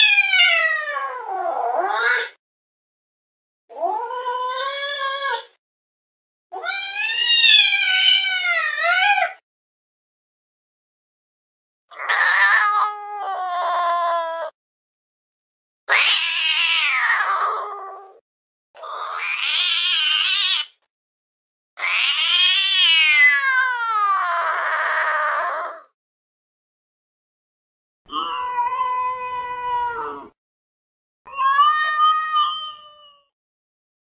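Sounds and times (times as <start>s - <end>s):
cat meowing: 0.0s - 2.4s, 6.6s - 9.4s, 12.0s - 14.5s, 15.9s - 18.2s, 18.8s - 20.7s, 21.8s - 25.9s, 28.1s - 30.4s, 31.3s - 33.3s.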